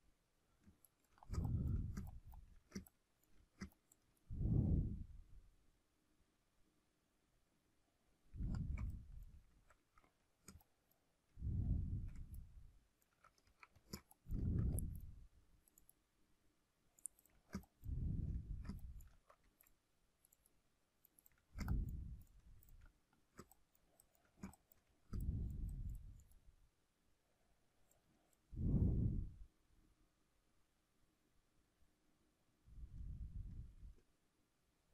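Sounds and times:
computer mouse clicks: 0:00.6 - 0:04.3, 0:08.4 - 0:16.0, 0:17.0 - 0:26.4.

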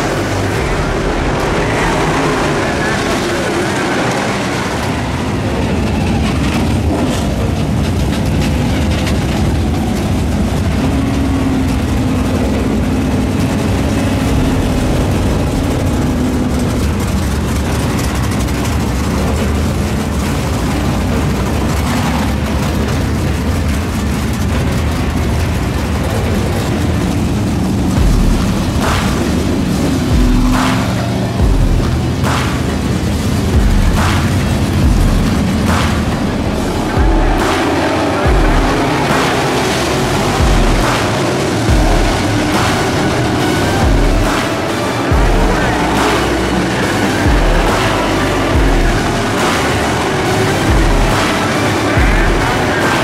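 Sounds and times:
race car engines: 0:00.0 - 0:53.0
low thumps: 0:27.8 - 0:53.0.

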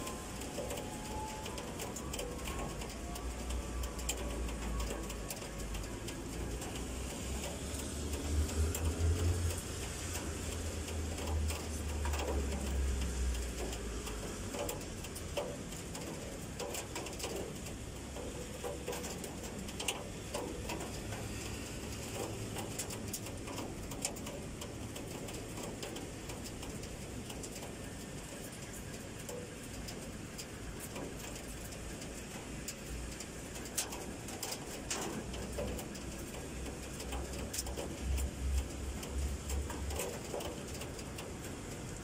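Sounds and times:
heavy rain hissing: 0:00.0 - 0:42.0
sharp drip ticks: 0:00.0 - 0:42.0.

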